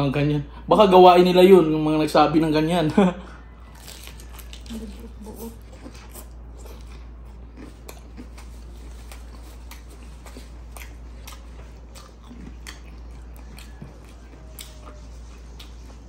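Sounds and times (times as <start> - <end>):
person chewing: 3.6 - 16.0.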